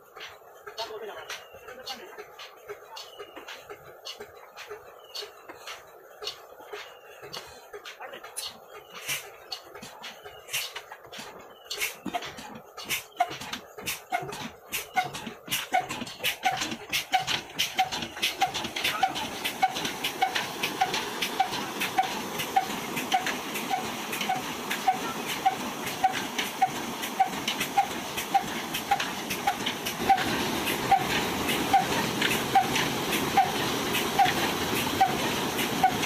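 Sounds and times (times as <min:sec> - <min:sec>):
water gushing from pipes: 0:08.3 - 0:36.0
diesel engine beat: 0:11.7 - 0:36.0.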